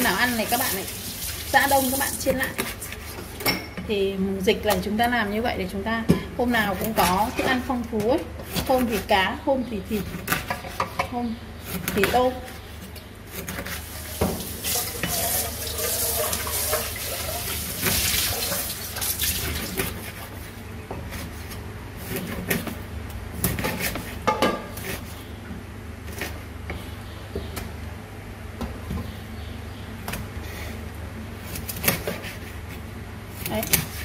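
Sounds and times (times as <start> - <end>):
knife slicing fish: 31.4 - 34.0.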